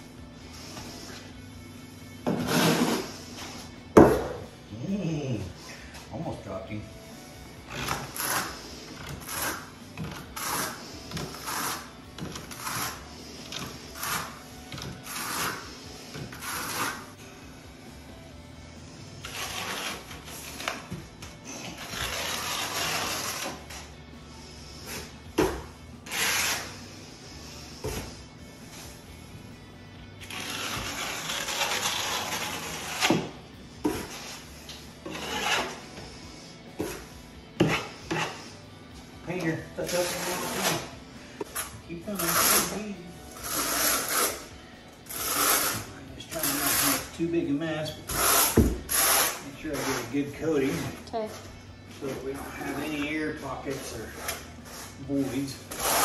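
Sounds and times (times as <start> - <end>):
background music: 0.0 - 56.0
trowel scraping mortar: 2.3 - 3.2, 7.8 - 14.4, 15.0 - 17.2, 19.2 - 20.9, 21.7 - 23.8, 26.1 - 26.8, 30.2 - 33.3, 33.9 - 35.9, 39.9 - 42.8, 43.4 - 44.5, 45.1 - 47.2, 48.1 - 51.0, 53.7 - 56.0
trowel scraping wet mortar: 2.3 - 3.2, 16.4 - 17.1, 35.0 - 35.8, 39.9 - 40.9, 41.6 - 42.8, 43.4 - 44.5, 45.1 - 47.2, 48.1 - 51.0.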